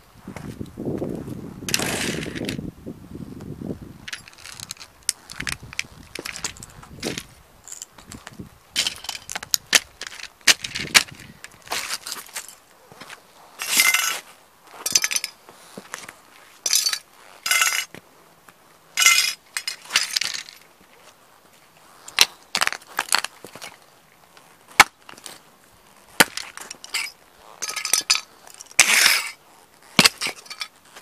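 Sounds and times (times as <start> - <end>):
plastic toy cars crunching underfoot: 1.7 - 2.6, 4.0 - 31.0
plastic pieces clinking on concrete: 4.1 - 7.9, 8.8 - 12.6, 13.6 - 14.2, 14.8 - 15.4, 16.7 - 18.0, 19.0 - 20.7, 26.2 - 29.4, 30.0 - 30.9.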